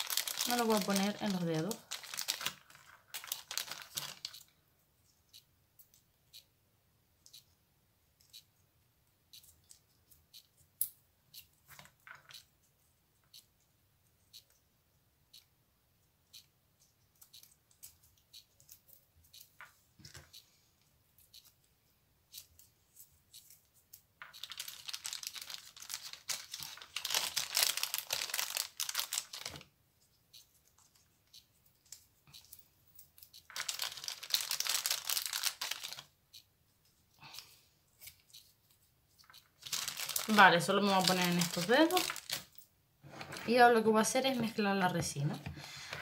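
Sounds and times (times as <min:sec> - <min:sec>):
plastic bag crinkling: 0:00.0 - 0:04.5, 0:24.2 - 0:29.7, 0:33.4 - 0:36.1, 0:39.2 - 0:42.6.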